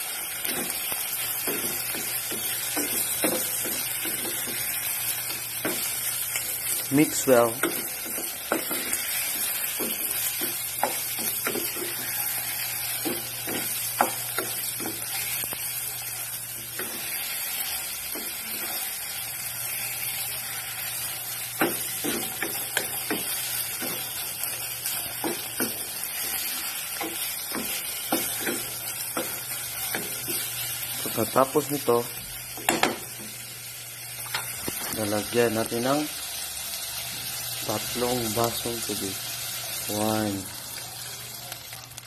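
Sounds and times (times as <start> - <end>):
chicken sizzling in a pot: 0.0 - 42.0
spatula knocking and scraping pot: 7.6 - 15.3.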